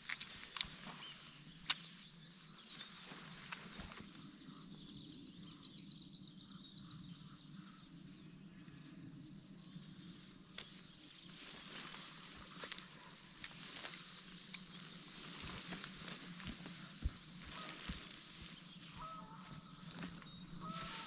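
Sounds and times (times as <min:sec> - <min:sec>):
songbirds trilling: 0:00.0 - 0:21.0.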